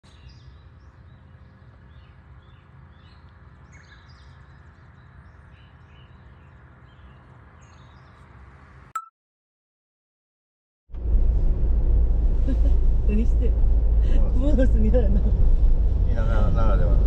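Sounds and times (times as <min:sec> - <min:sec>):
small birds chirping: 0:00.1 - 0:08.5
low background rumble: 0:10.9 - 0:17.0.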